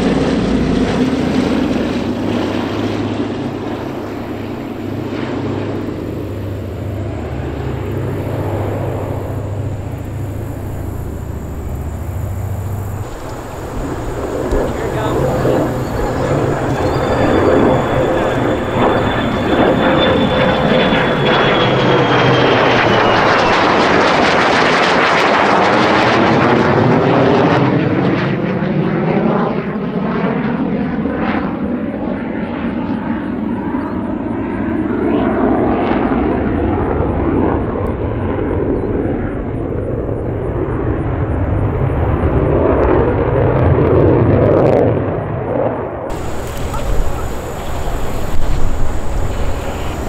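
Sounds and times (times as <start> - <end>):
jet whine dropping in pitch: 0.0 - 29.9, 46.0 - 50.0
jet engine roar: 0.0 - 50.0.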